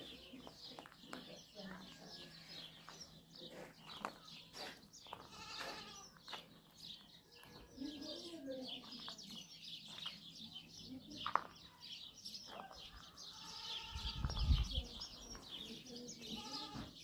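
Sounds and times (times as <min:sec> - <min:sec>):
goats bleating: 0:05.2 - 0:06.2, 0:13.3 - 0:14.2, 0:16.2 - 0:16.9.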